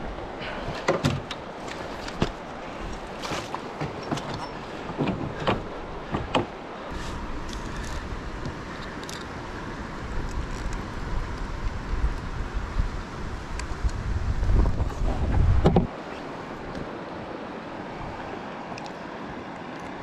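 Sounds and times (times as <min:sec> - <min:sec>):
wind rumble on microphone: 0:03.8 - 0:18.4.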